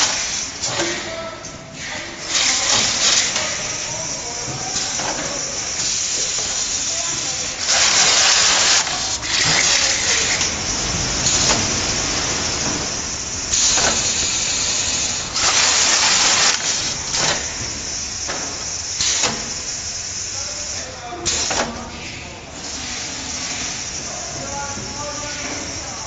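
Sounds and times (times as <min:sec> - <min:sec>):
bursts of hiss: 0:01.8 - 0:21.6
sealing machine din: 0:02.2 - 0:19.6.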